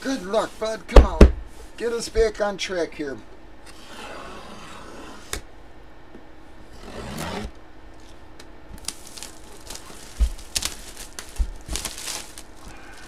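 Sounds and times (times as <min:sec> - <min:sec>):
cardboard box scraping and rubbing: 0:03.7 - 0:05.3, 0:06.7 - 0:08.1.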